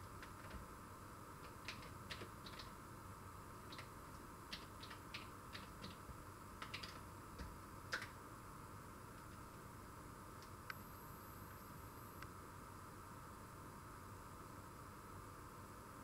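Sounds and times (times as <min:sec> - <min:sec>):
faint steady modem tone: 0:00.0 - 0:16.0
keyboard keystrokes: 0:01.4 - 0:02.7, 0:03.7 - 0:03.9, 0:04.5 - 0:06.0, 0:06.6 - 0:08.2.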